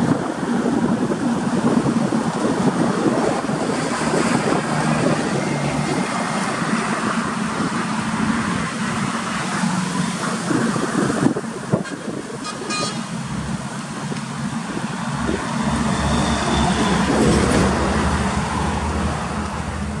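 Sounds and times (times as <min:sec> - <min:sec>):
heavy trucks passing: 0:00.0 - 0:20.0
truck horn toot: 0:11.8 - 0:13.2.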